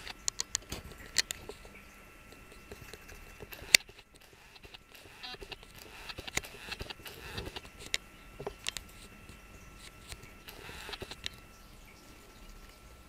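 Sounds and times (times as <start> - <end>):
small clicks and ticks: 0.0 - 11.6
faint steady hum: 0.0 - 13.0.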